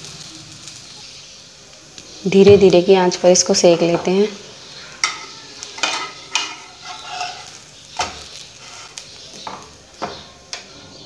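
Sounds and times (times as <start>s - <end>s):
faint sizzling: 0.0s - 11.0s
metal spatula scraping frying pan: 5.0s - 9.2s.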